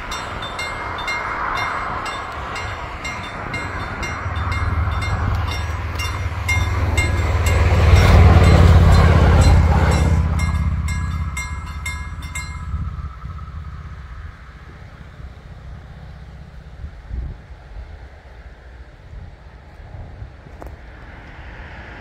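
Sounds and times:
crossing warning bells ringing: 0:00.0 - 0:16.6
electric train passing: 0:00.0 - 0:22.0.

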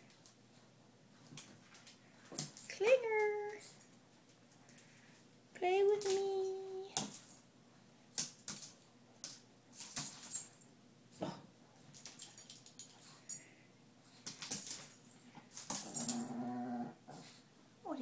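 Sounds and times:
paws clicking on tile floor: 0:14.1 - 0:16.5.

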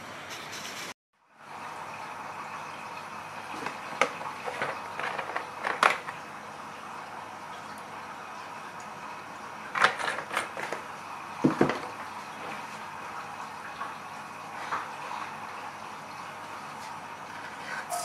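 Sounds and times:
clicks and knocks of utensils: 0:03.6 - 0:06.2, 0:09.7 - 0:10.8.

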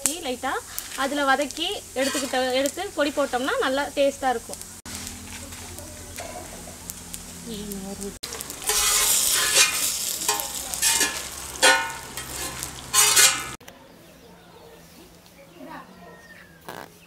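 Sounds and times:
dry seeds rattling: 0:00.0 - 0:13.6
metal spatula scraping iron pan: 0:01.9 - 0:03.7, 0:08.3 - 0:13.6.

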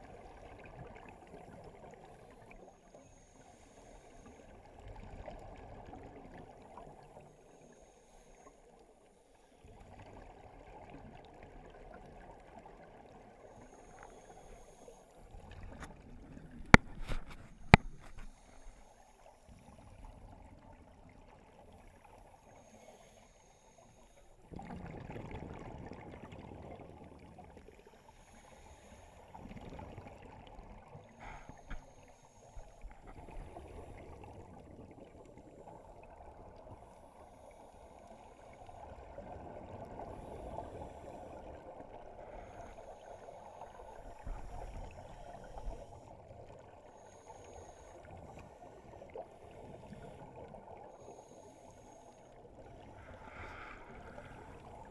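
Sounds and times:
muffled underwater bubbling: 0:24.4 - 0:54.9.

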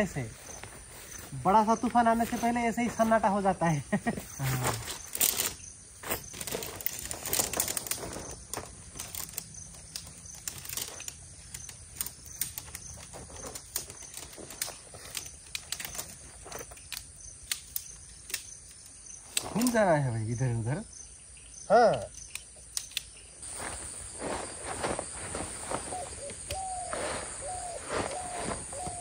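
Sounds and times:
insect chirping: 0:00.0 - 0:29.0
light clicks and rustles: 0:04.3 - 0:19.8.

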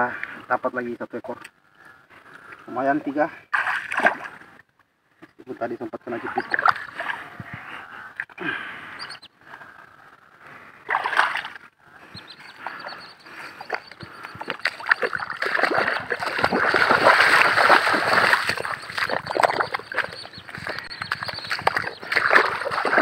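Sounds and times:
feet squelching through water and mud: 0:03.5 - 0:04.4, 0:10.9 - 0:11.6, 0:12.5 - 0:23.0.

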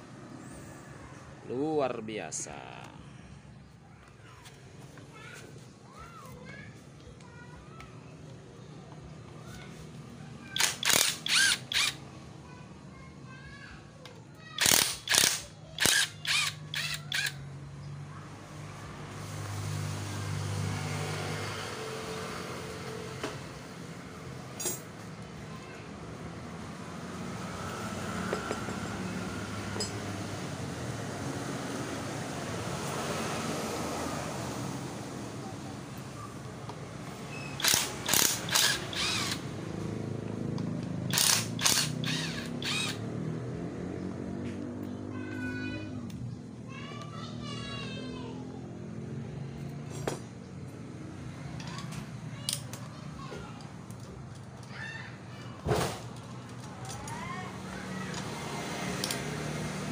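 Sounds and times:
cordless power wrench bursts: 0:10.5 - 0:12.0, 0:14.6 - 0:17.4, 0:37.4 - 0:39.5, 0:41.1 - 0:43.0.

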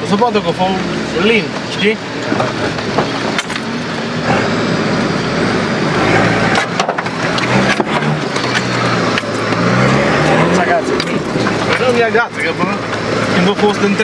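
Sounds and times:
engine running under load: 0:00.0 - 0:14.0
stones knocking and clunking: 0:06.5 - 0:09.7, 0:11.0 - 0:12.1.

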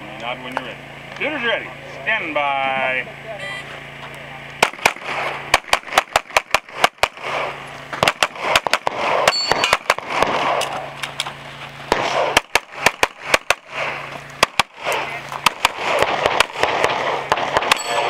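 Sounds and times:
pistol shots: 0:04.6 - 0:11.0, 0:11.9 - 0:18.0.

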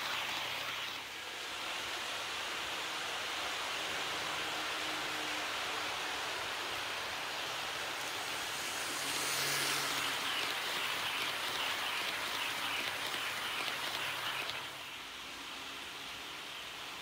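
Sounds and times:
faint motor hum: 0:05.3 - 0:17.0.

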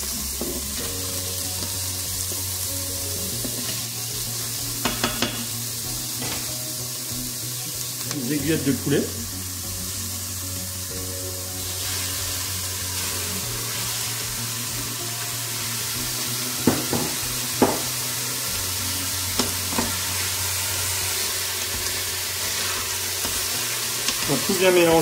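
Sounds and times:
onion and chicken sizzling: 0:00.0 - 0:25.0.

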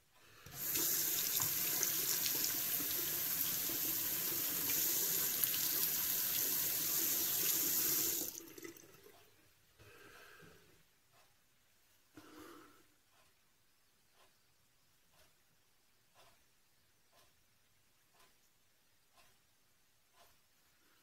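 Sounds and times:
faint small sounds: 0:00.0 - 0:21.0
sink tap running: 0:00.5 - 0:09.1.

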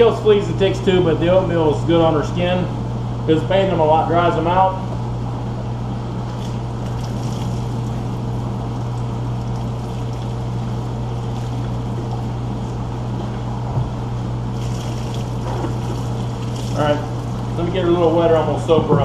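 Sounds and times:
low machine hum: 0:00.0 - 0:19.0
water trickling and splashing: 0:06.3 - 0:12.4, 0:14.5 - 0:17.6.

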